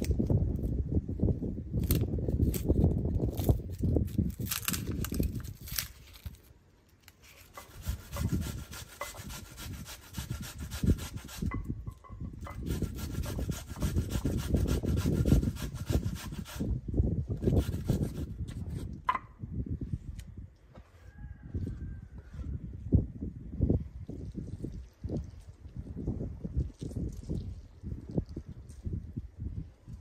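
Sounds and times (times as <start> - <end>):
onion grated on metal grater: 7.2 - 11.6, 12.4 - 16.7, 17.4 - 18.3.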